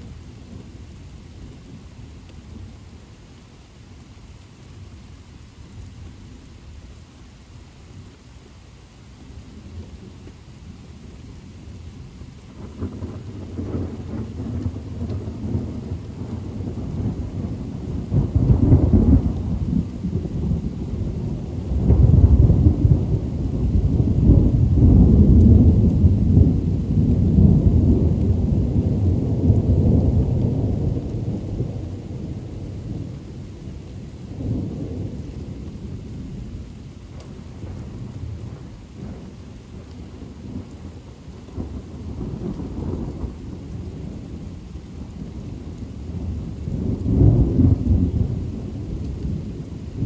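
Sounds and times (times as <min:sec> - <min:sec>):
steady rain: 0:00.0 - 0:50.0
thunder rumbling: 0:11.8 - 0:50.0.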